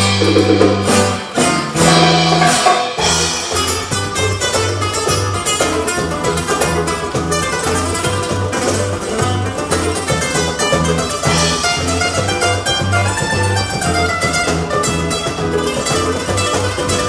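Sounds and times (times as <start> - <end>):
electric bass low notes: 0.0 - 17.0
nylon-string guitar plucked run: 0.0 - 17.0.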